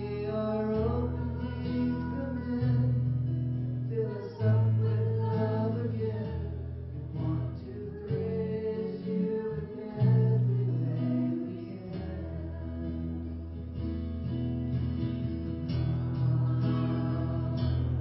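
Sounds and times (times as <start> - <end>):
acoustic guitar music: 0.0 - 18.0
steady bass line: 11.9 - 18.0.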